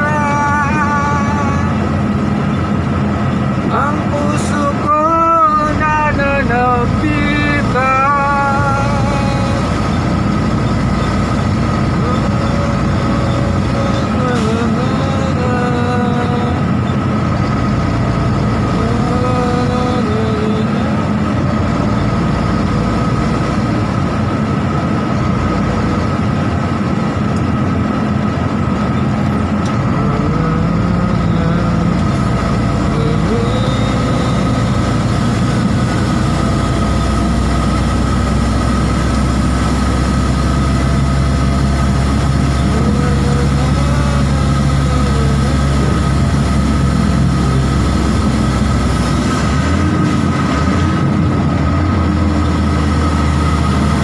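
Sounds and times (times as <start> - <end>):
truck engine and road noise: 0.0 - 54.0.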